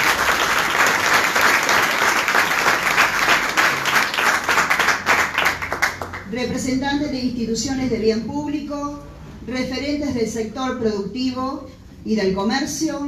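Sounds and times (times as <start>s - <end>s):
people applauding: 0.0s - 6.3s.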